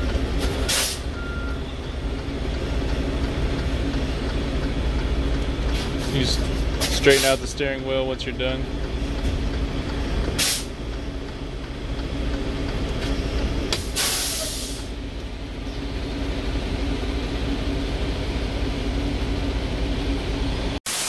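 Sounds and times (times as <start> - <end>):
diesel truck engine running: 0.0 - 20.8
air brakes hissing: 0.4 - 1.4, 5.7 - 7.5, 10.3 - 10.8, 13.0 - 14.9.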